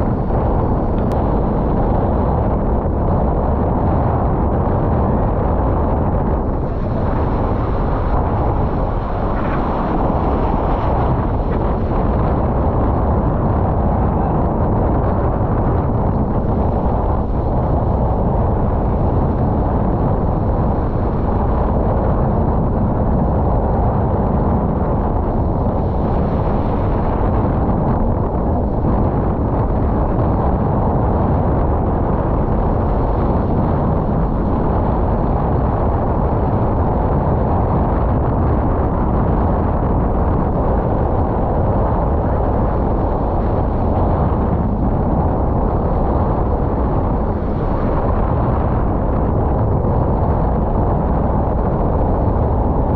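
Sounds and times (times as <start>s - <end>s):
wind buffeting microphone: 0.0s - 52.9s.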